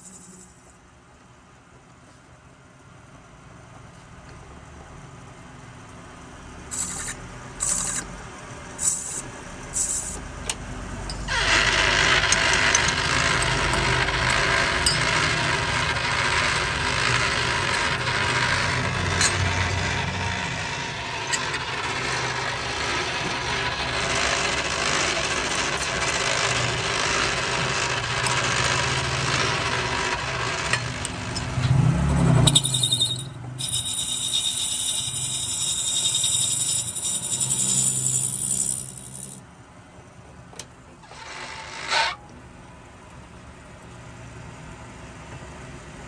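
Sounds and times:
cutting tool scraping brass: 6.7s - 8.1s, 8.8s - 10.2s, 11.2s - 31.4s, 32.4s - 39.4s
metal lathe running: 11.3s - 31.6s, 32.4s - 39.4s
metal chips rattling: 32.5s - 39.4s.

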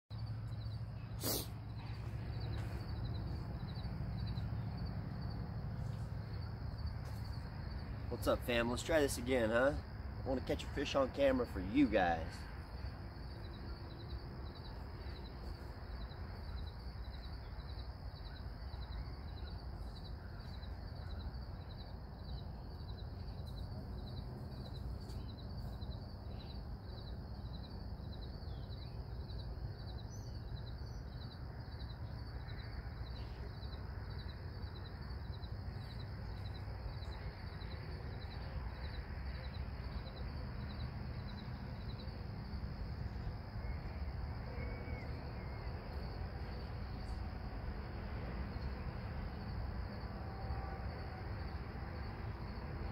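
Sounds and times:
insect chirping: 0.1s - 52.9s
low outdoor rumble: 0.1s - 52.9s.

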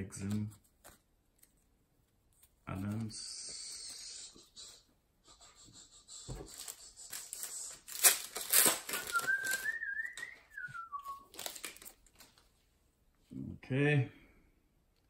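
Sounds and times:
plastic wrapper tearing and crinkling: 6.5s - 10.3s, 11.0s - 12.4s
wavering whistle: 8.9s - 11.3s.

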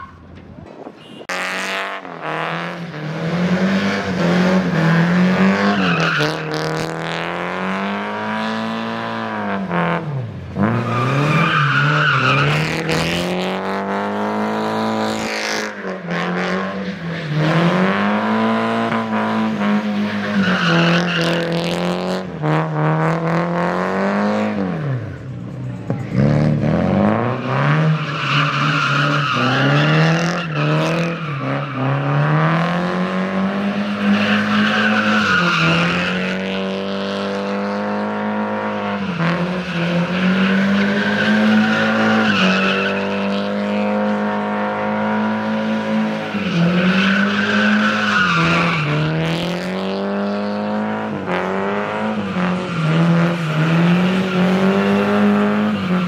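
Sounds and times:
car engine revving hard: 26.1s - 56.0s.

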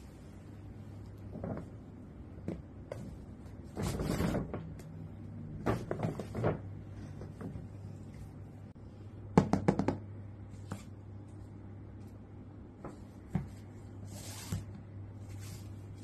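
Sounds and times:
paper bag rustling and scraping: 14.0s - 16.0s.

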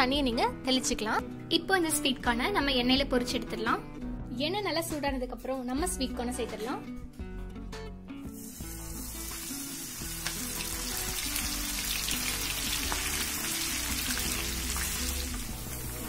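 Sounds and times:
hot oil sizzling and crackling: 8.3s - 16.0s.

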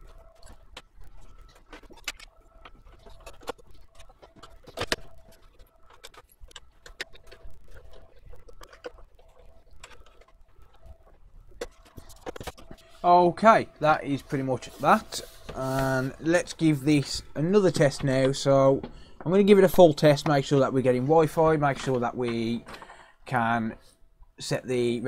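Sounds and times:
clicks and knocks of plastic casing: 17.7s - 23.1s.

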